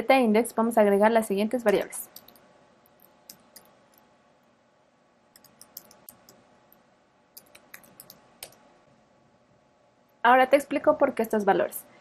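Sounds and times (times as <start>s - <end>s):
faint keyboard typing: 1.6s - 4.1s, 5.3s - 8.7s.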